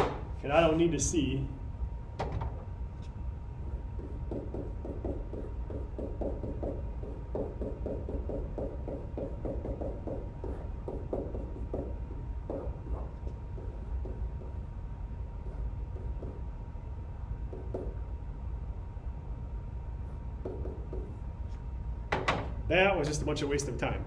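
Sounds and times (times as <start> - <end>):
steady low hum: 0.0 - 24.0
stylus scratching and tapping: 3.9 - 14.6.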